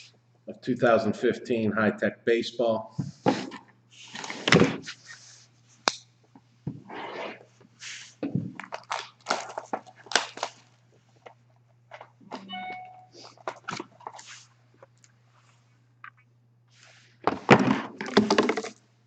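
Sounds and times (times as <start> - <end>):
wrapper and cardboard crinkling: 8.6 - 11.4.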